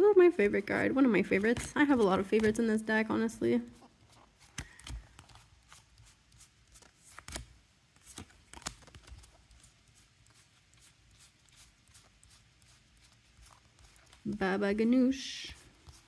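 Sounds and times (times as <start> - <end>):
cards tapping and flicking: 1.3 - 2.8, 4.2 - 14.2.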